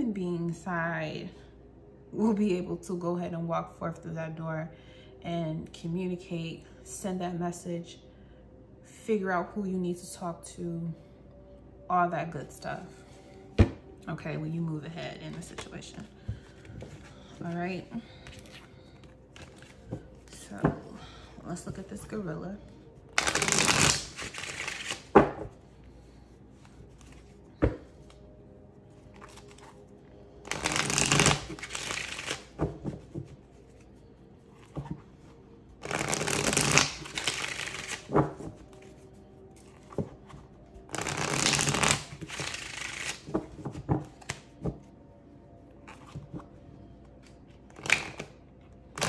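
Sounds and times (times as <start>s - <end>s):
cards being shuffled: 18.2s - 20.4s, 23.1s - 25.5s, 26.6s - 28.2s, 29.1s - 29.8s, 30.4s - 35.1s, 35.8s - 39.0s, 39.6s - 44.8s, 47.2s - 49.0s.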